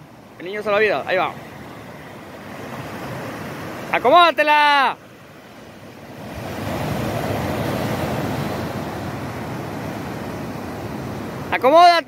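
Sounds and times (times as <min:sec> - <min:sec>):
ocean surf breaking on beach: 0:00.0 - 0:12.0.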